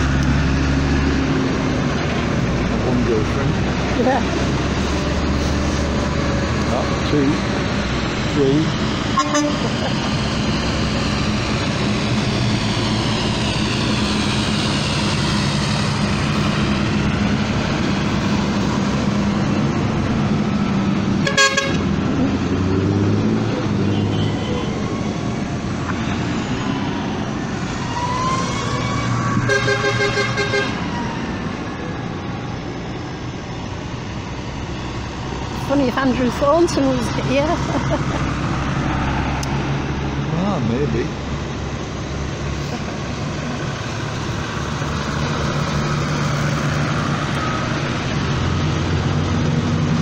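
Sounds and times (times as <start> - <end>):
tractor diesel engines running: 0.0 - 50.0
horn toots: 9.1 - 9.8, 21.2 - 21.9, 29.4 - 30.8.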